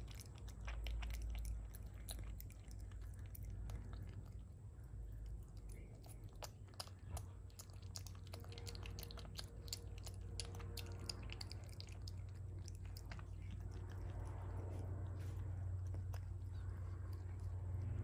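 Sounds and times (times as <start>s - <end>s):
possum chewing with mouth clicks: 0.0s - 18.0s
steady low hum: 0.0s - 18.0s.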